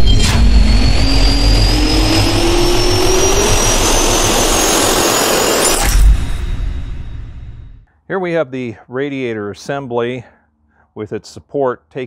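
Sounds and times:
jet turbine spooling up: 0.0s - 7.8s.

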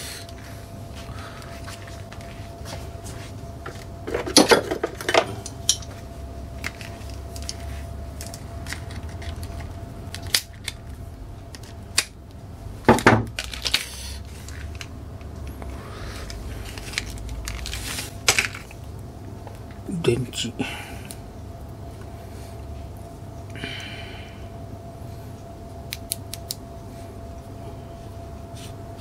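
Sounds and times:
plastic rustling: 12.9s - 15.0s, 15.6s - 18.8s.

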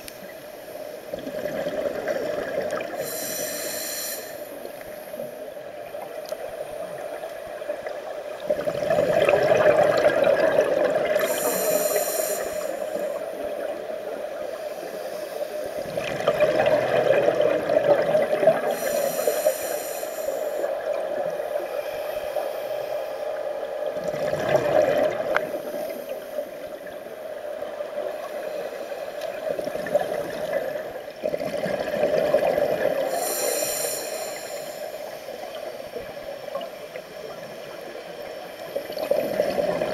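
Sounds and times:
regulator hiss: 2.9s - 7.7s, 11.2s - 13.8s, 18.5s - 23.7s, 33.0s - 38.8s
bubbling exhalation underwater: 8.6s - 11.4s.

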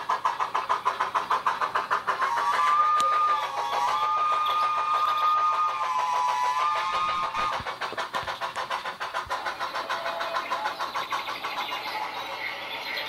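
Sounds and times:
rapid exhaust chuffs: 0.0s - 13.0s
steam whistle chord: 2.3s - 7.4s.

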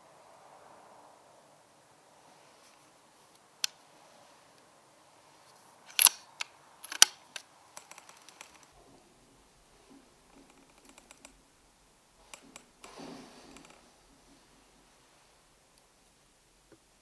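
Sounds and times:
air rifle clicks: 5.9s - 8.7s.

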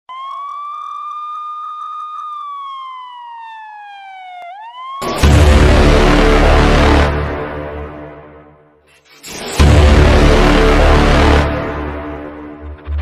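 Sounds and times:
siren wailing: 0.1s - 7.2s
dramatic music: 5.0s - 13.0s.

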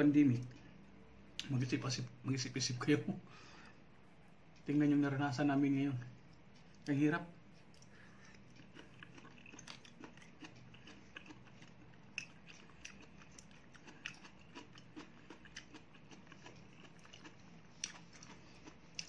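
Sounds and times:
faint steady hum: 0.0s - 19.0s
person chewing: 7.5s - 19.0s.

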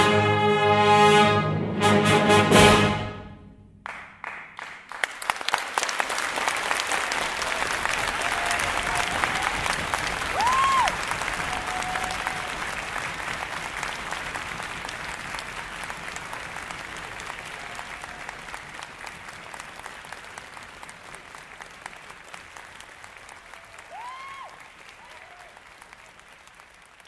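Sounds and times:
audience applauding: 3.8s - 27.0s
person whooping: 10.3s - 12.6s, 23.7s - 25.6s.

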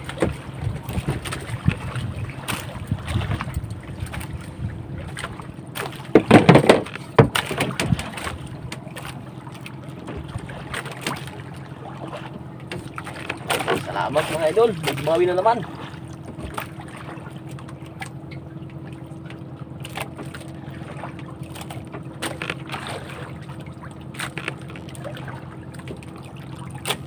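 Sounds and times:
boat engine running: 0.0s - 27.0s
water noise: 0.0s - 27.0s
wind noise: 0.3s - 5.2s.

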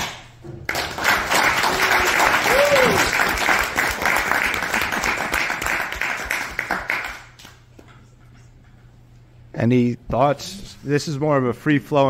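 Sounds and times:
audience applauding: 0.7s - 7.5s.

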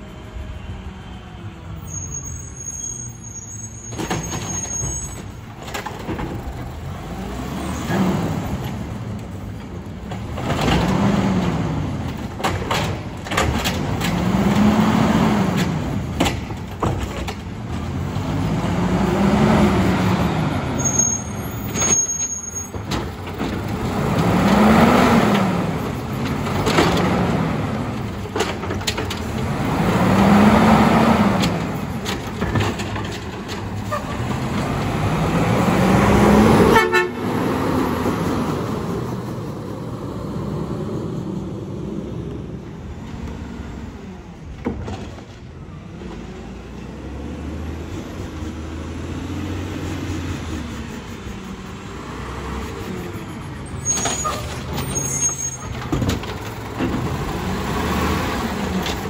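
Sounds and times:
clanks of arm and carts: 3.8s - 7.0s, 7.7s - 18.6s, 20.8s - 35.4s, 44.4s - 46.2s, 53.7s - 59.0s
garbage truck engine revving: 3.8s - 59.0s.

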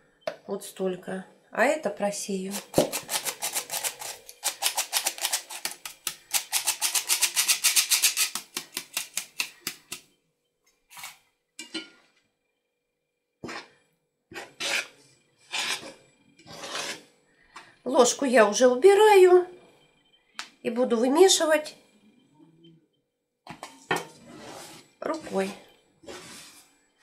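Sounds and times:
metal flour sifter rasping: 2.5s - 10.0s, 15.5s - 15.9s, 16.5s - 17.0s, 24.2s - 26.7s
metal spoon scraping pot: 2.5s - 10.0s, 14.3s - 17.1s, 23.6s - 26.6s.

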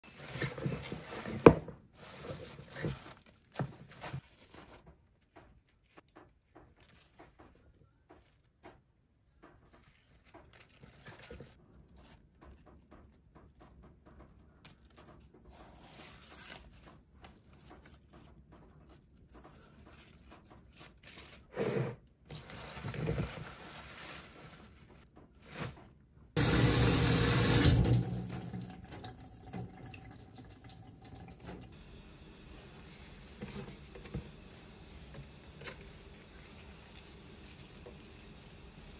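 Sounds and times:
tap water pouring into tray: 26.4s - 38.9s.

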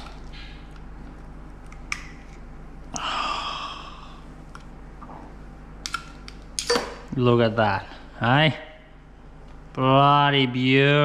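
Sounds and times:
breathy sigh: 3.0s - 4.3s.

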